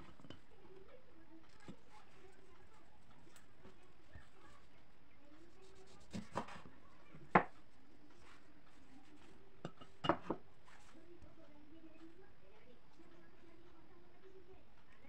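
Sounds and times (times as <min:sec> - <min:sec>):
ceramic bowl set on board: 0:00.0 - 0:00.5, 0:05.8 - 0:11.0
knife cutting lemon on board: 0:05.6 - 0:06.7.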